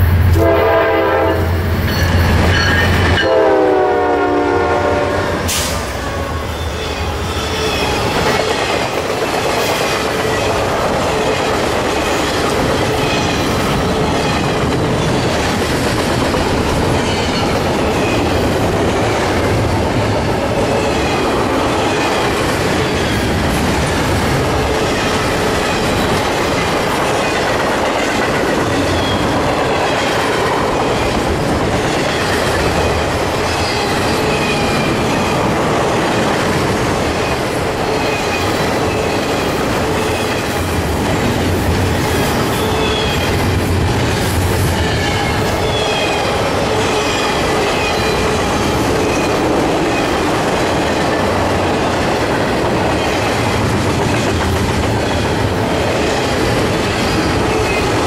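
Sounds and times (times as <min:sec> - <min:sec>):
train wheels rolling on rails: 0:00.0 - 0:58.0.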